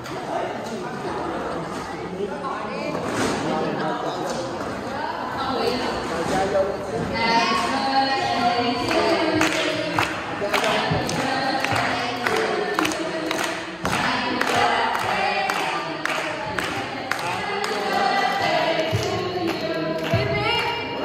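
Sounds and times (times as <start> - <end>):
group of people singing: 5.0 - 21.0
hands clapping in time: 8.9 - 21.0.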